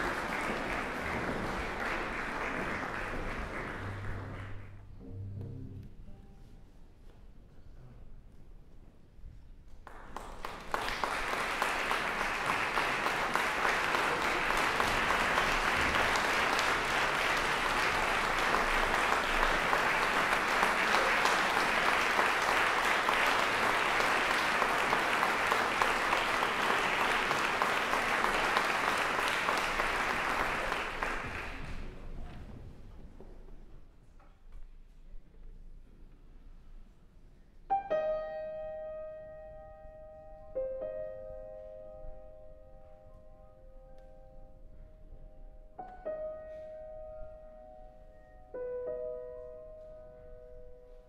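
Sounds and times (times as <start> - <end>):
audience applauding: 0.0 - 4.8, 9.8 - 32.4.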